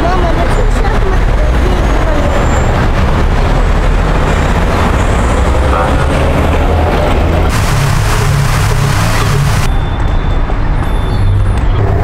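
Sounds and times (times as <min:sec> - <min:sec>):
road traffic rumble: 0:00.0 - 0:12.0
loud hiss: 0:07.5 - 0:09.7.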